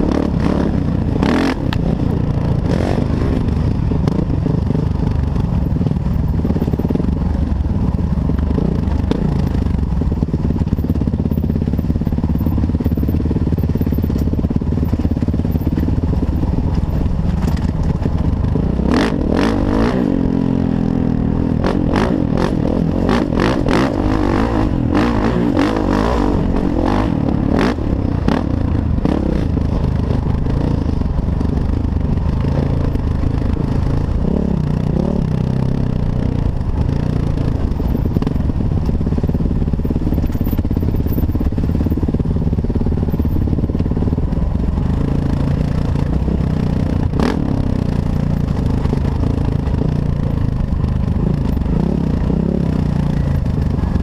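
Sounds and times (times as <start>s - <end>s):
dirt bike engine revving: 0.0s - 4.9s, 18.7s - 29.8s, 46.7s - 49.0s.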